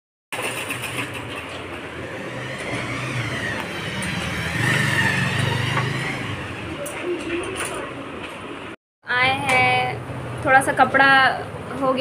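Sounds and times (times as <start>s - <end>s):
motorcycle engine running: 0.7s - 6.9s.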